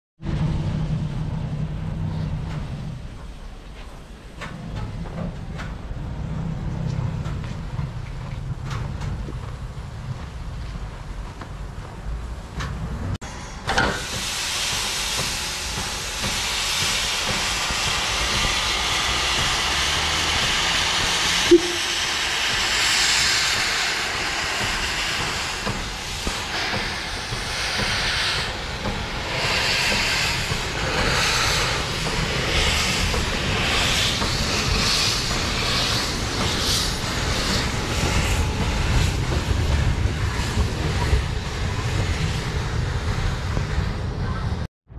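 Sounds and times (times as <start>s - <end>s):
steam locomotive chuffing: 0.2s - 44.7s
steam locomotive hissing: 12.1s - 44.7s.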